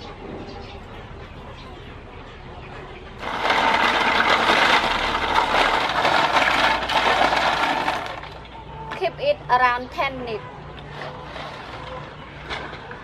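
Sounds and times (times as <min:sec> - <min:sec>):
shells clattering in metal bowl: 0:03.2 - 0:08.4.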